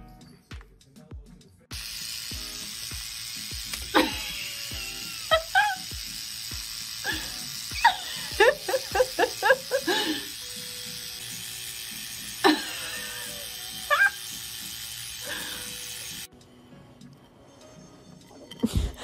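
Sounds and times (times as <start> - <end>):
electric toothbrush buzzing: 1.7 - 16.3.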